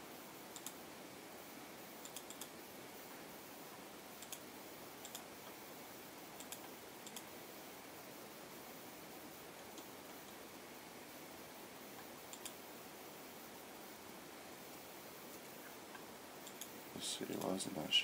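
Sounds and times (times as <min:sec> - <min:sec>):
steady hiss: 0:00.0 - 0:18.0
faint computer mouse clicks: 0:00.5 - 0:00.8, 0:02.0 - 0:02.5, 0:04.2 - 0:04.4, 0:05.0 - 0:05.2, 0:06.4 - 0:07.3, 0:12.0 - 0:12.6, 0:15.9 - 0:16.8.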